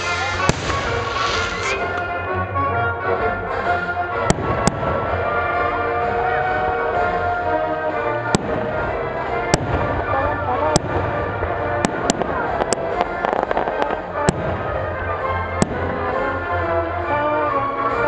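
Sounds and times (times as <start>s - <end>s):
firework crackling: 0.0s - 2.1s, 8.3s - 16.8s
music playing: 0.0s - 18.0s.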